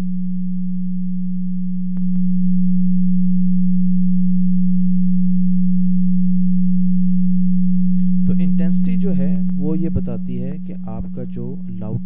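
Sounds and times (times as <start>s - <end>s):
steady sine tone: 0.0s - 12.0s
faint click: 1.9s - 2.2s.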